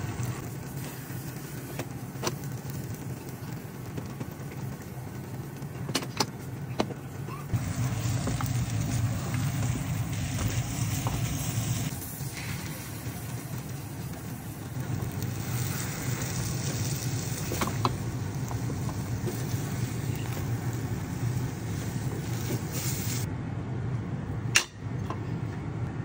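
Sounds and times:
egg sizzling in a pan: 0:07.5 - 0:23.3.

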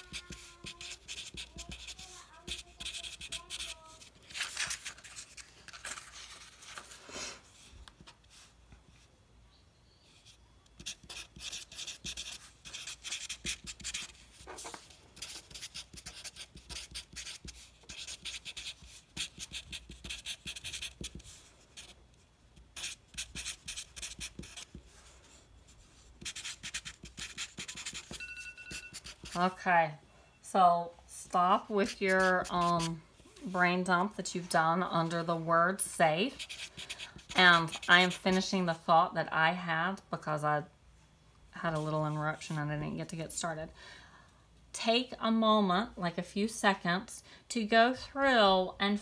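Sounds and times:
marker writing on paper: 0:00.0 - 0:04.7, 0:10.2 - 0:22.0, 0:22.6 - 0:29.6, 0:31.7 - 0:33.0, 0:36.3 - 0:38.4.

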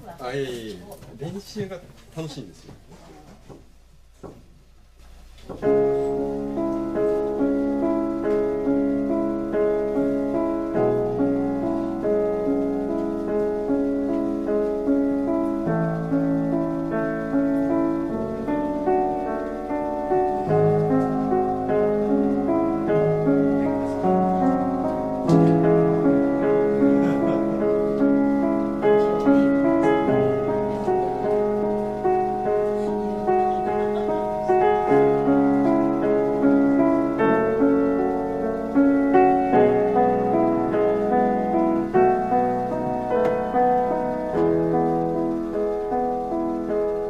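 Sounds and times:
upright piano chords: 0:05.5 - 0:47.0.

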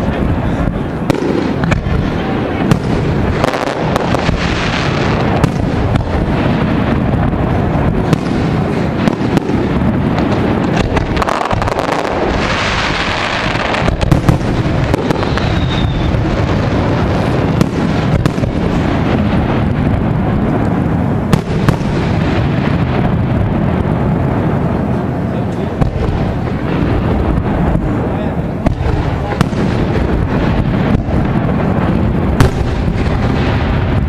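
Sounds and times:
fireworks booming and crackling: 0:00.0 - 0:34.0
high firework whistle: 0:14.8 - 0:16.4.

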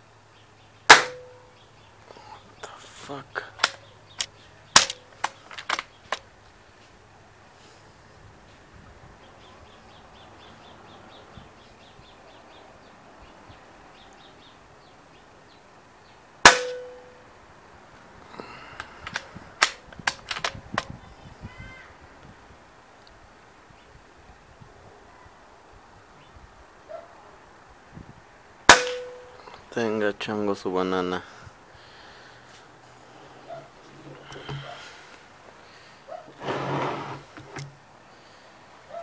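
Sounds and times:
air rifle shot: 0:00.9 - 0:01.4, 0:16.4 - 0:17.1, 0:28.7 - 0:29.4
rifle handling clicks: 0:03.6 - 0:06.3, 0:18.8 - 0:20.9.

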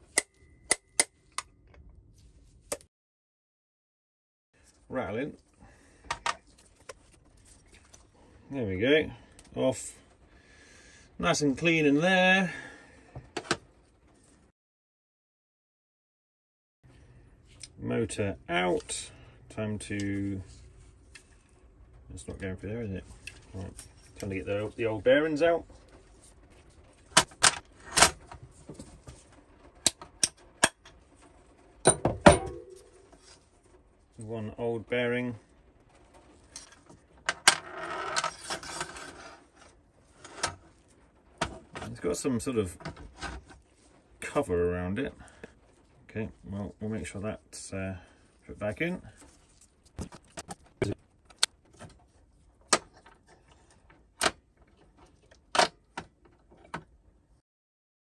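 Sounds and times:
metallic ring: 0:31.9 - 0:33.1.

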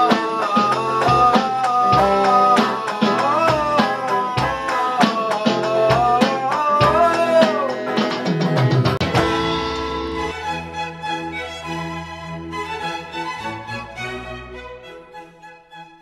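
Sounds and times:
electronic drum beat: 0:00.0 - 0:10.3
electric guitar melody: 0:00.0 - 0:12.4.

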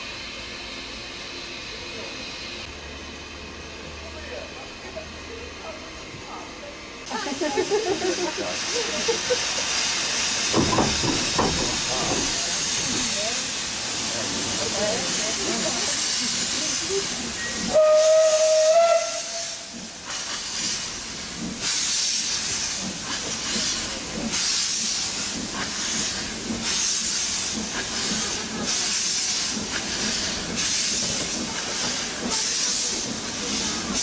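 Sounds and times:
steam locomotive chuffing: 0:00.0 - 0:34.0
steam locomotive whistle: 0:17.4 - 0:19.8.

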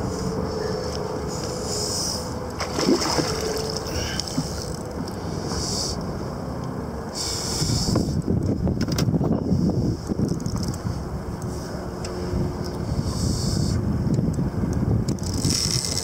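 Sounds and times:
faint steady hum: 0:00.0 - 0:16.0
water lapping against boat: 0:01.4 - 0:06.0
wind on microphone: 0:07.4 - 0:16.0.

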